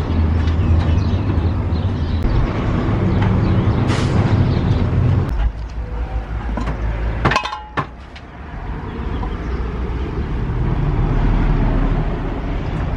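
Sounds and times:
metal pot lid clinking: 7.3 - 7.9.

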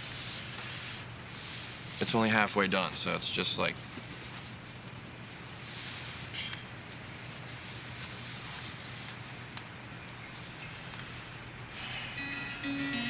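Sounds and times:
background hiss: 0.0 - 13.0
soft rustle: 3.6 - 4.9, 7.2 - 9.3.

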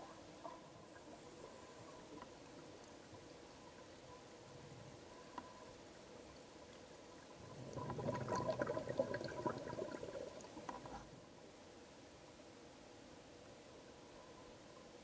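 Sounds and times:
faint steady hum: 0.0 - 15.0
air bubbles gurgling underwater: 7.4 - 11.0.

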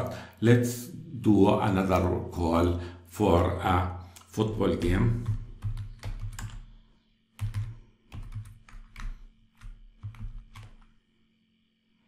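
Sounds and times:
typing on computer keyboard: 4.8 - 11.0.

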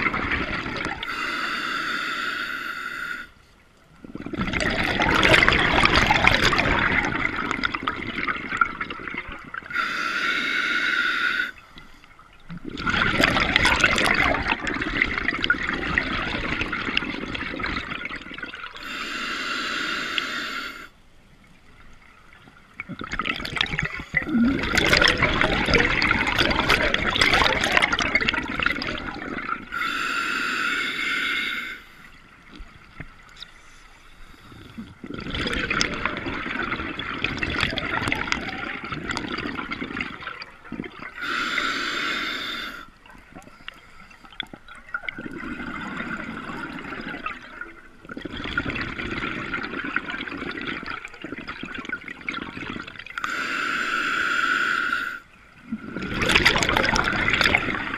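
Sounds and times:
regulator bubbling exhalations: 4.0 - 11.6, 12.5 - 20.9, 22.8 - 31.8, 34.3 - 57.9
hissing regulator inhalation: 9.7 - 11.6, 18.8 - 20.9, 29.7 - 32.1, 41.2 - 42.9, 53.2 - 55.3.

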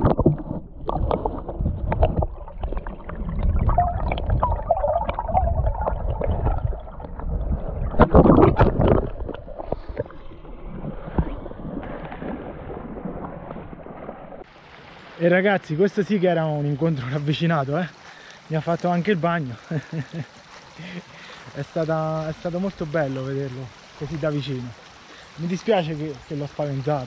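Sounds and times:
fish thrashing and splashing: 0.0 - 14.2
creek water gurgling: 0.0 - 27.0.

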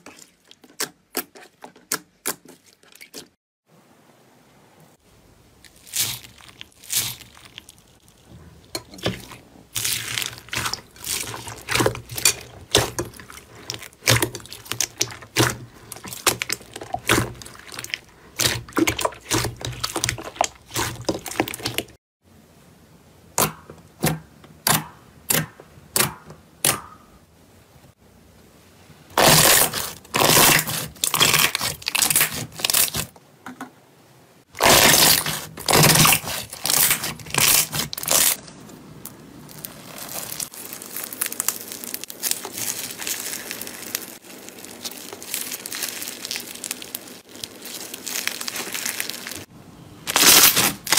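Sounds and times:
foam bead slime crackling: 5.6 - 22.0, 29.2 - 33.1, 34.6 - 50.9
slime squelching and popping: 5.6 - 22.0, 29.2 - 33.1, 34.6 - 38.5, 39.5 - 49.5.

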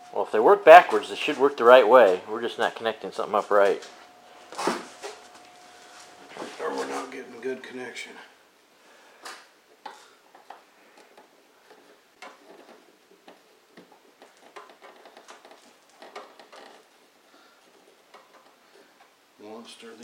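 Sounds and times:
small clicks and rustles of wires: 9.2 - 19.2.

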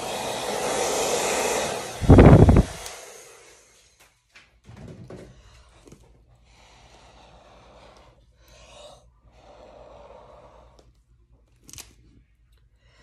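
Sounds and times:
hair dryer running: 0.0 - 4.1
air buffeting on microphone: 1.9 - 2.8.

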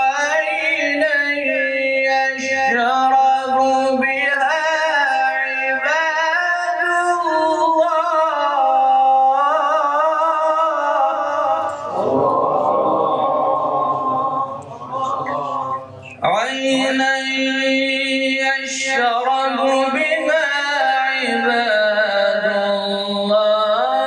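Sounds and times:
man chanting recitation: 0.0 - 24.0.

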